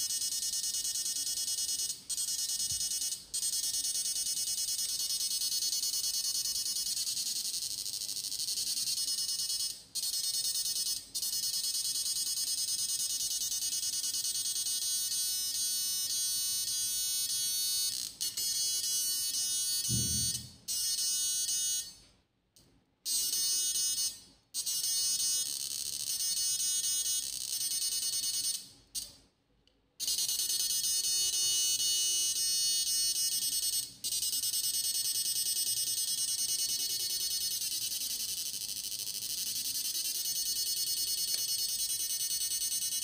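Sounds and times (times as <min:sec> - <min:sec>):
high-pitched electronic whine: 0:19.8 - 0:20.5
short low thump: 0:19.9 - 0:20.5.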